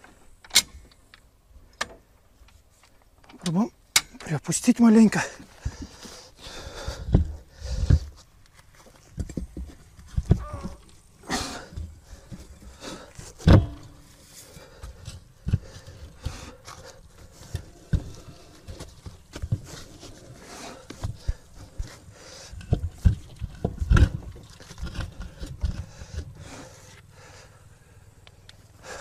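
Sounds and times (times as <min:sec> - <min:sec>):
knocks and clunks of repair work: 0:11.7 - 0:14.1
heavy thump: 0:13.4 - 0:14.1
metal scraping: 0:13.4 - 0:14.5.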